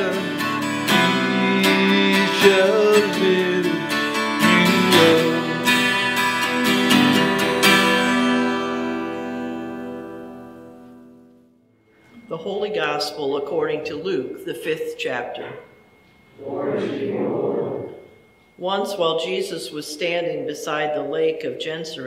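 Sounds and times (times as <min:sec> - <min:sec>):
twelve-string acoustic guitar strumming: 0:00.0 - 0:11.3.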